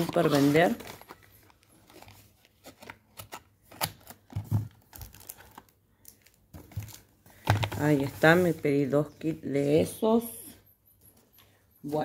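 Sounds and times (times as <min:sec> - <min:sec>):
packaging crinkling: 0:00.0 - 0:07.8.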